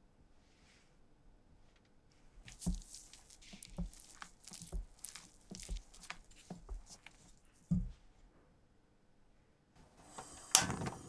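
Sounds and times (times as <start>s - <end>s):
spatula folding batter: 2.3s - 8.1s
soft thuds: 2.4s - 8.1s.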